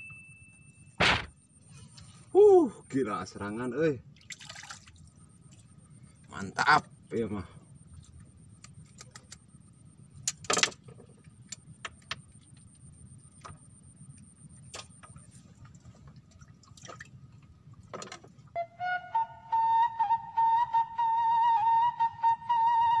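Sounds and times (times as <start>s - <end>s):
fishing tackle clicks and knocks: 8.6s - 9.4s
flute music: 18.5s - 23.0s.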